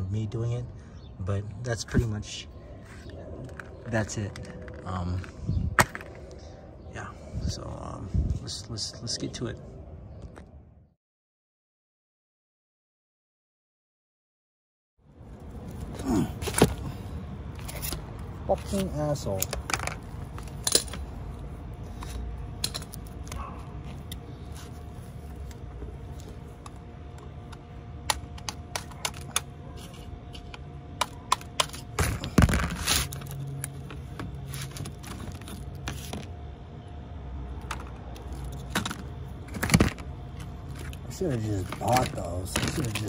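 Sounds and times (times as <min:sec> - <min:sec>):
hand tools clinking on metal: 0:17.6 - 0:21.1, 0:22.0 - 0:24.2.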